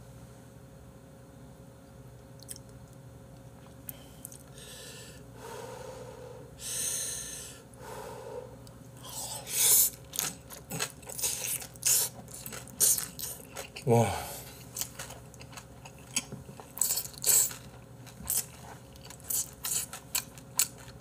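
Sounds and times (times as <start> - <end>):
wet chewing: 2.4 - 2.8, 9.1 - 21.0
person slurping noodles: 10.7 - 14.6.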